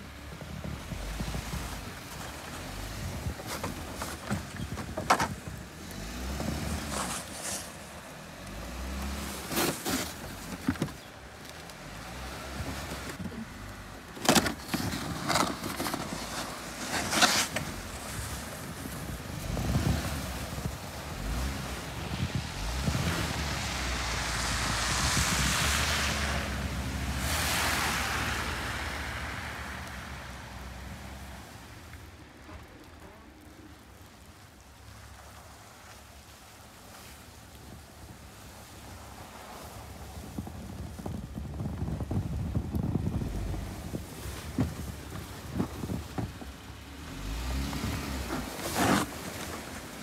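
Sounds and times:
engine running low: 0.0 - 36.2
snow plow pushing snow: 0.0 - 50.0.

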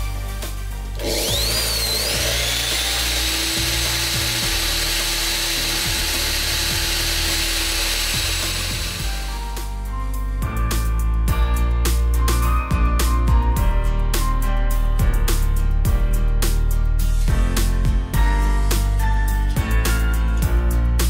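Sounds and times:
electric drill motor whine: 1.0 - 9.5.

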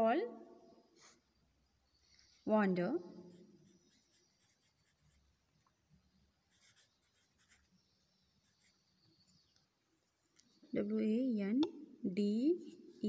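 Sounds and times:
pencil scratching on paper: 3.3 - 5.3, 6.5 - 7.8, 8.4 - 9.0.

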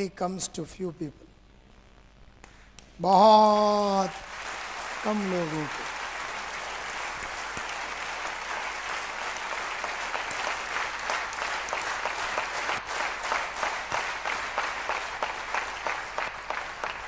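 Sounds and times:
audience applauding: 3.3 - 17.0.

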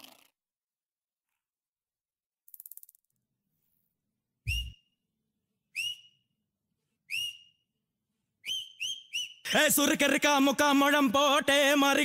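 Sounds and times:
whistle-like chirps: 4.5 - 5.0, 5.7 - 6.3, 7.1 - 7.7, 8.4 - 9.5.

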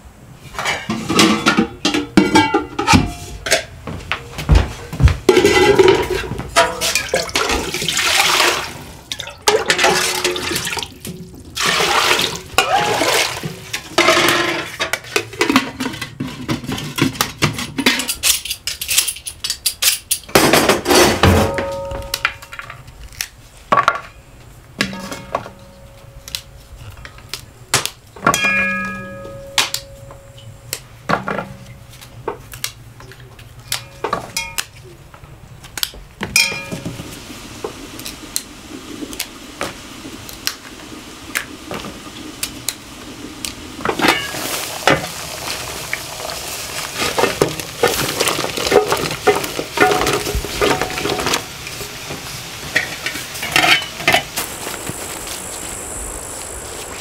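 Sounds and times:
metal kitchenware clinking: 0.6 - 3.8, 5.3 - 7.8, 28.3 - 30.5, 33.7 - 34.7, 36.3 - 37.0
water pouring in a metal basin: 6.6 - 14.3.

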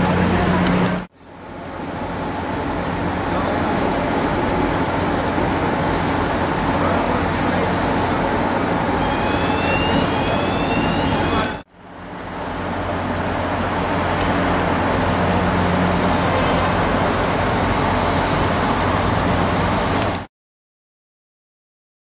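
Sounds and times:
ferry engine rumble: 0.0 - 20.3
traffic ambience: 0.0 - 20.3
short rising whines: 8.9 - 11.6.

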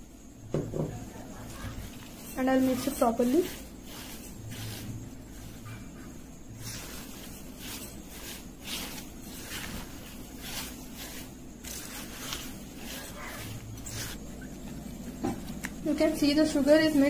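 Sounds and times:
spatula scraping glass bowl: 1.4 - 14.8.

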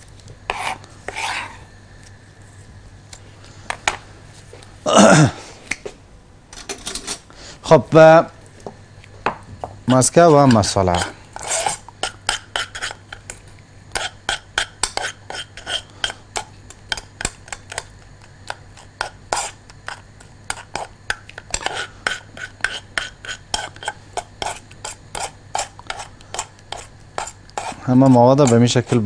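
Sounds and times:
spoon scraping a saucepan: 0.5 - 1.5, 10.4 - 13.0, 13.9 - 15.9, 19.0 - 29.0.

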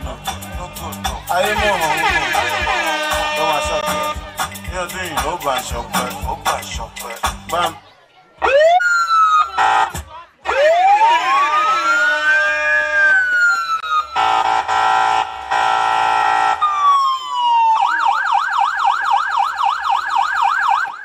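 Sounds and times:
electronic siren wailing: 8.4 - 9.9, 10.5 - 14.8, 16.4 - 21.0.

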